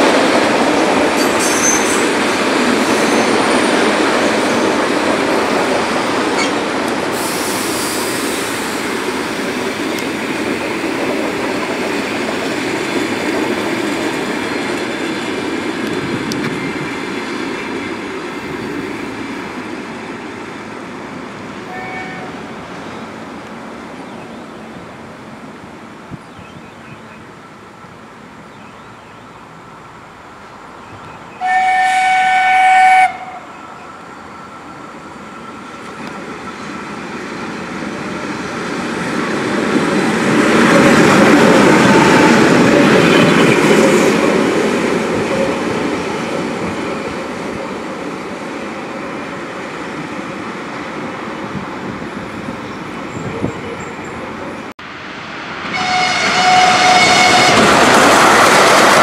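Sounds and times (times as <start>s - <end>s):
train passing rumble: 0.0s - 59.0s
train horn blowing: 21.6s - 22.5s, 31.4s - 33.6s, 55.7s - 57.9s.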